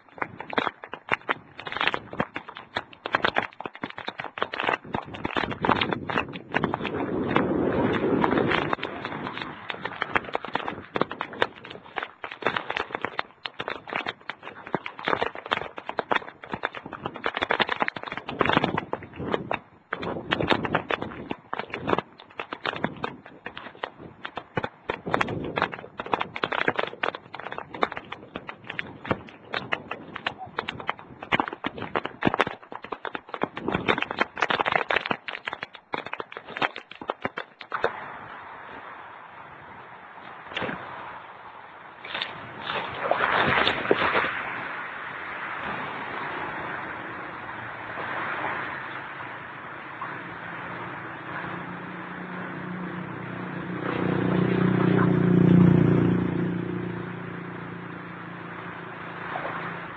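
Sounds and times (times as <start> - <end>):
steady rushing noise: 0.0 - 59.9
heavy rain drumming on hard surface: 4.7 - 14.4.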